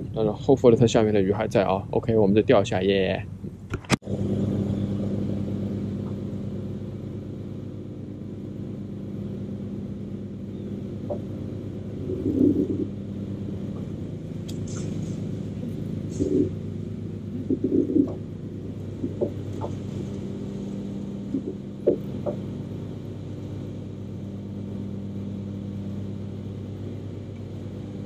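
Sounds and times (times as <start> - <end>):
electric trolling motor hum: 0.0 - 28.0
low rumble: 9.2 - 24.1.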